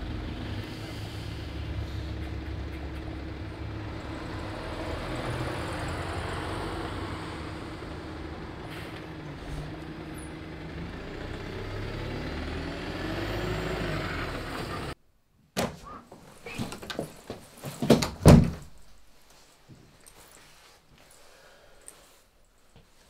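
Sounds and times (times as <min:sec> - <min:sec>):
bus engine passing: 0:00.0 - 0:15.0
short knocks and handling sounds: 0:15.6 - 0:18.8.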